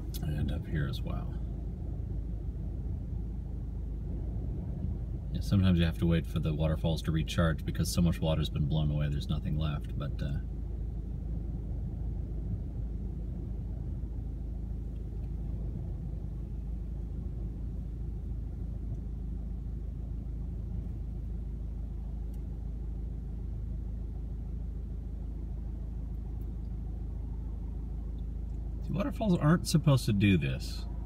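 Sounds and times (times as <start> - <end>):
wind buffeting a car: 0.0 - 31.0.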